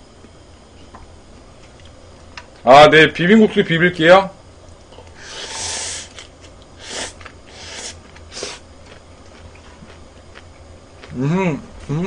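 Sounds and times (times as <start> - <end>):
person slurping noodles: 5.2 - 6.2, 6.8 - 8.6.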